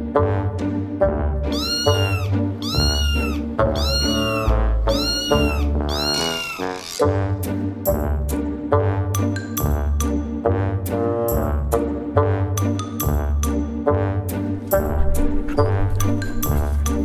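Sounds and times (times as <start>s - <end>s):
cat meowing: 1.5s - 7.0s.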